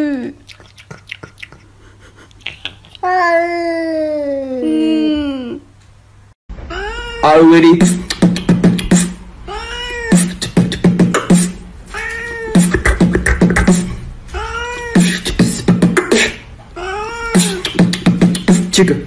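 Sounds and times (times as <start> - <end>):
cat meowing: 6.7 - 7.6, 9.5 - 10.2, 11.9 - 12.6, 14.3 - 15.0, 16.8 - 17.6
person beatboxing: 7.7 - 9.2, 10.1 - 11.6, 12.5 - 14.0, 14.9 - 16.5, 17.3 - 19.0.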